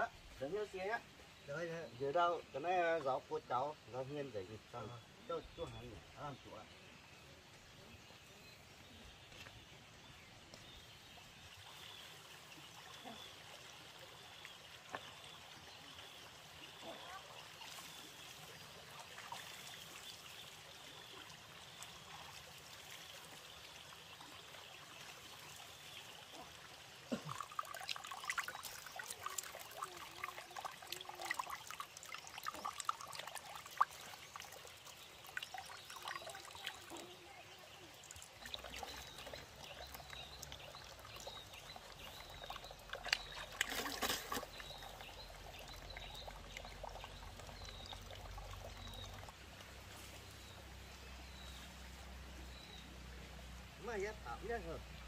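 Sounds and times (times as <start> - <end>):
water trickling into basin: 9.8 - 55.0
hands splashing water: 38.0 - 46.8.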